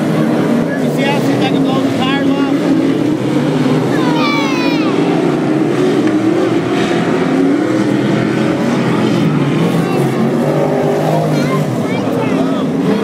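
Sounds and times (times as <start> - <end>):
race car engines: 0.0 - 13.0.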